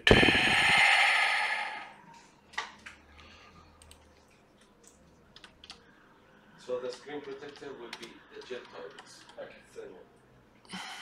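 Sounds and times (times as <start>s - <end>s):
computer keyboard typing: 4.8s - 5.8s, 7.2s - 9.4s.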